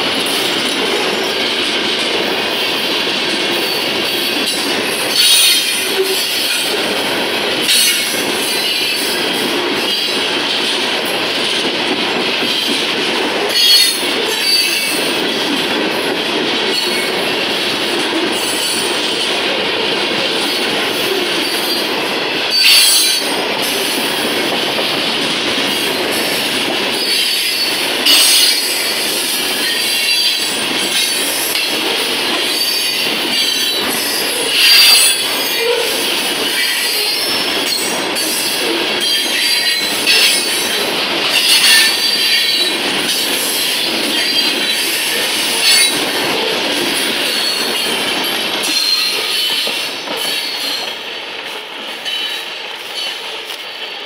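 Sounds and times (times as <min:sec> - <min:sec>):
metallic wheel squeal on rail: 0:03.6 - 0:06.8, 0:07.6 - 0:09.2, 0:13.5 - 0:15.1, 0:22.5 - 0:23.8, 0:27.0 - 0:46.6, 0:47.2 - 0:51.1, 0:52.0 - 0:54.0.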